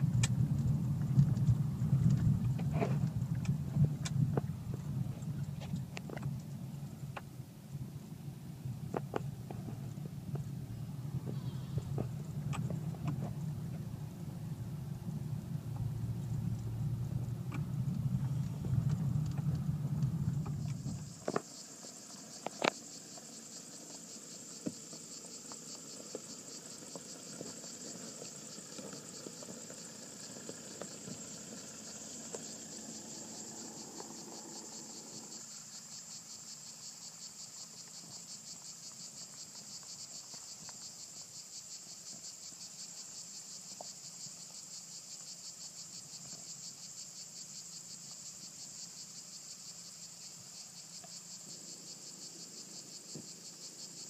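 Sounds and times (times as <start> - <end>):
diesel engine running low: 0.0 - 21.2
cicadas buzzing: 0.0 - 54.0.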